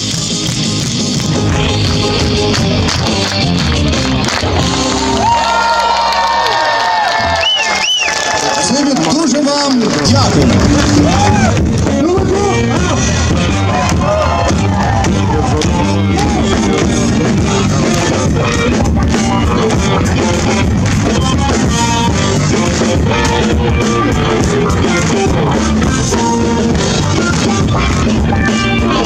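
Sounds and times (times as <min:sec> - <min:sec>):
drum kit: 0:00.0 - 0:05.5, 0:09.8 - 0:29.0
electric guitar: 0:00.0 - 0:06.0, 0:09.8 - 0:29.0
bass guitar: 0:00.0 - 0:06.4, 0:09.8 - 0:29.0.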